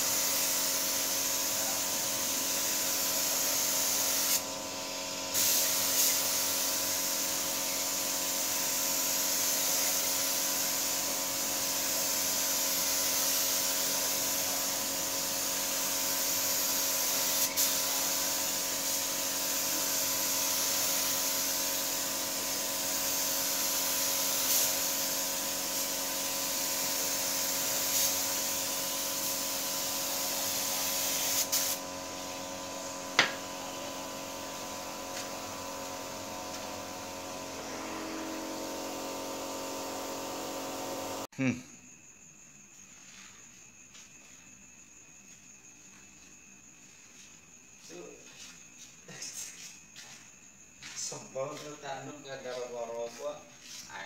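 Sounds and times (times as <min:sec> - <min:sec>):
paint spray gun hissing: 0:00.0 - 0:41.4.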